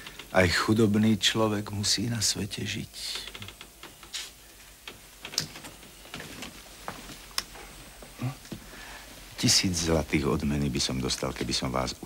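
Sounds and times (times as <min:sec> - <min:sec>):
footsteps: 0:05.4 - 0:09.9.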